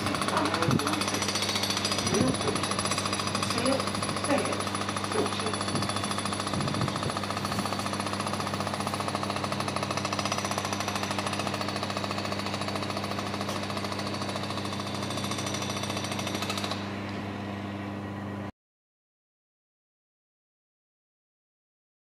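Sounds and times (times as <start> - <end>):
rapid mechanical hammering: 0.0 - 17.0.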